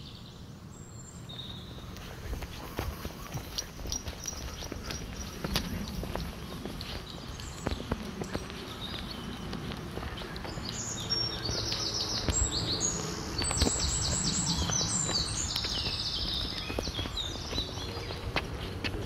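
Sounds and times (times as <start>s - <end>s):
songbird singing: 0.0s - 19.0s
footsteps on dirt path: 1.3s - 19.0s.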